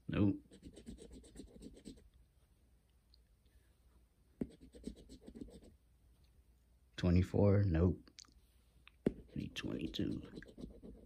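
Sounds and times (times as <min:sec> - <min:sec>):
coin scratching a ticket: 0:00.5 - 0:02.0, 0:09.4 - 0:11.0.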